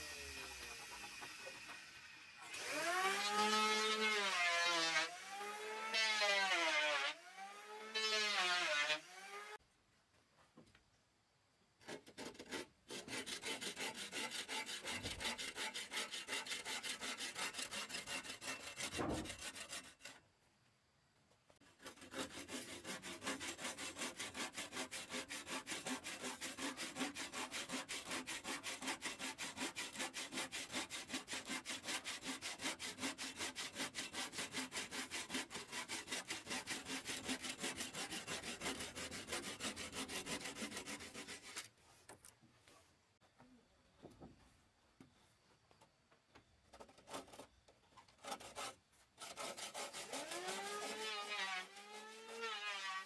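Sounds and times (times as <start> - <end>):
hand saw cutting wood: 0.0 - 9.6, 11.8 - 20.3, 21.6 - 42.2, 46.7 - 53.0.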